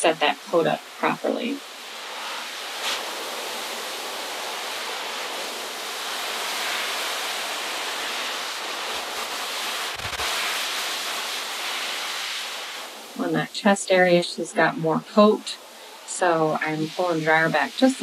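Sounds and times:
pet dryer blowing air: 0:02.0 - 0:12.8.

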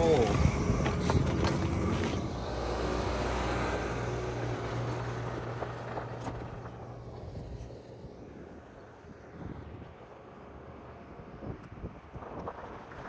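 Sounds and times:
tractor diesel engine running: 0:00.0 - 0:07.7.

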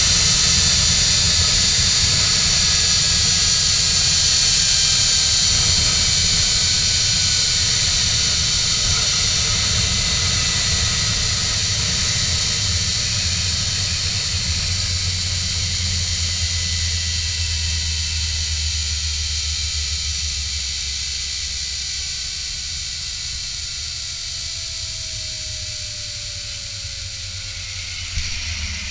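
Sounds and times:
wind noise: 0:00.0 - 0:15.3.

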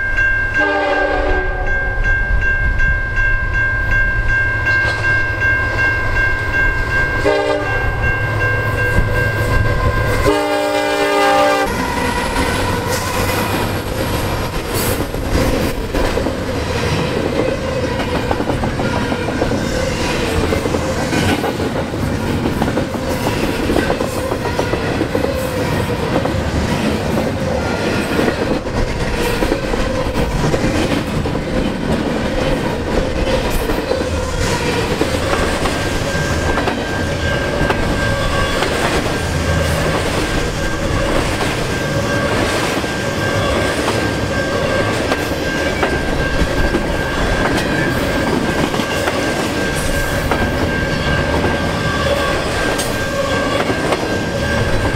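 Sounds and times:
locomotive air horn blasts: 0:00.6 - 0:01.7, 0:07.2 - 0:08.0, 0:09.8 - 0:11.9.

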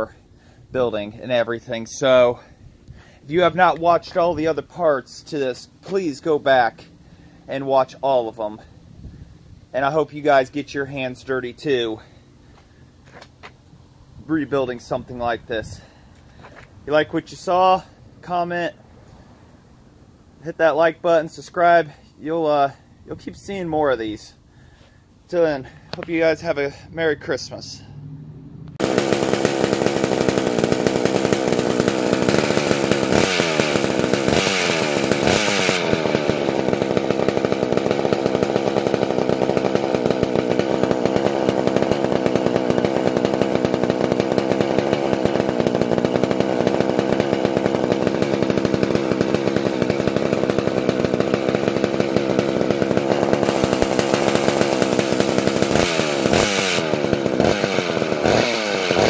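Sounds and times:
two-stroke chainsaw engine revving: 0:27.8 - 0:59.0.

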